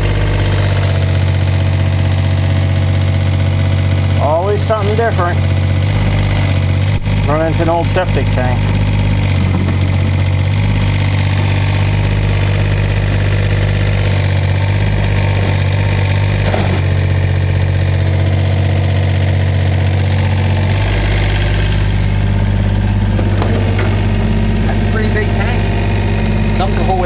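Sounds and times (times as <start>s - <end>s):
diesel engine idling: 0.0s - 27.0s.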